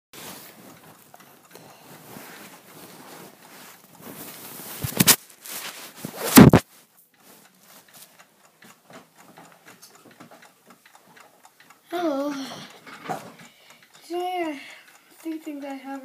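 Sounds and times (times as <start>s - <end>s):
mechanical clock ticking: 0.2s - 5.3s, 6.2s - 16.0s
phone rustling and scraping: 1.8s - 8.0s.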